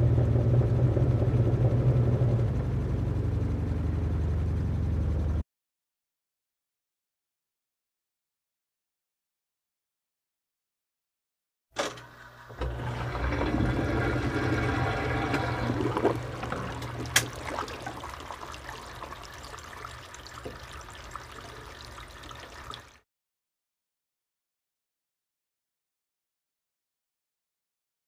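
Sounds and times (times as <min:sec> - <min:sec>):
low rumble: 0:00.0 - 0:05.4
running splashing water: 0:12.3 - 0:23.0.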